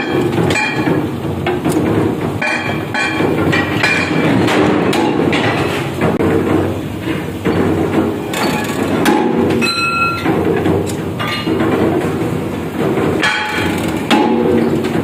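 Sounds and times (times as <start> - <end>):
heavy press running: 0.0 - 15.0
steel clanking on steel: 0.0 - 15.0
steel plate ringing: 9.2 - 10.3.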